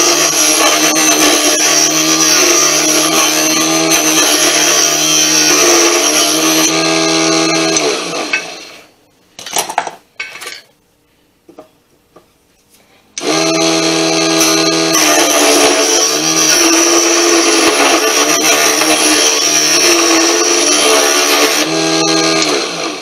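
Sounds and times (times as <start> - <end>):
chisel cutting wood on lathe: 0.0 - 8.6, 13.2 - 23.0.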